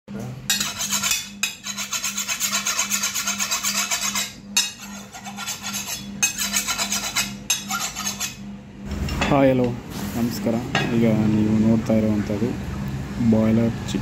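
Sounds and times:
cleaver scraping on sharpening rod: 0:00.5 - 0:08.4.

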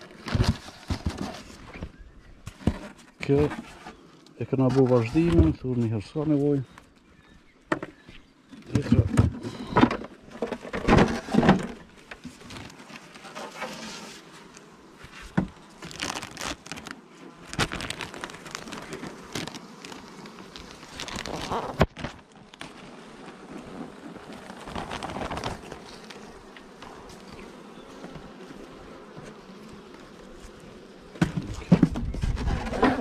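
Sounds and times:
hive parts knocking and scraping: 0:00.0 - 0:06.4, 0:07.7 - 0:33.0
plastic sheet crinkling: 0:15.1 - 0:22.9, 0:24.1 - 0:26.5.

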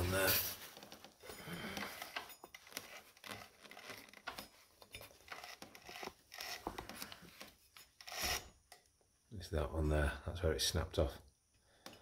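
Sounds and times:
handling clicks and rustles: 0:00.0 - 0:08.0.

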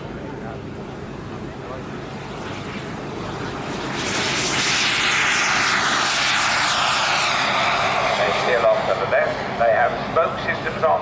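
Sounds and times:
model aircraft engine flying past: 0:01.3 - 0:11.0.

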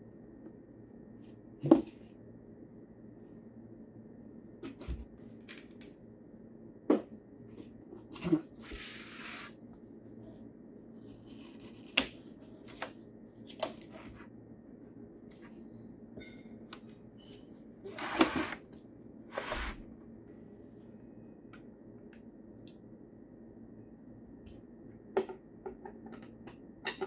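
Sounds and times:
cardboard rustling scrapes: 0:08.2 - 0:09.6, 0:17.9 - 0:18.6, 0:19.3 - 0:19.9.

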